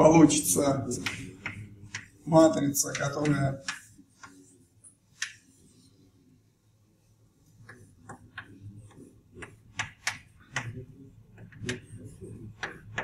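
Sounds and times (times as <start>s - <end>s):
chalk tapping on blackboard: 0.9s - 4.4s, 5.1s - 5.6s, 7.6s - 10.8s, 11.4s - 13.0s.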